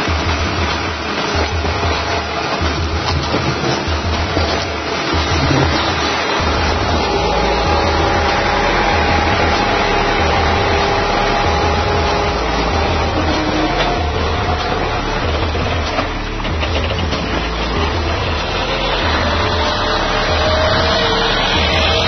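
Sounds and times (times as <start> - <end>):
tractor engine pulsing drone: 0.0 - 22.0.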